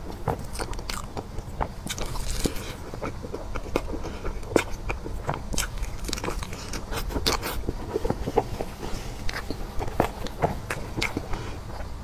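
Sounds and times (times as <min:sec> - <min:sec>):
person chewing crunchy dessert: 0:00.0 - 0:12.0.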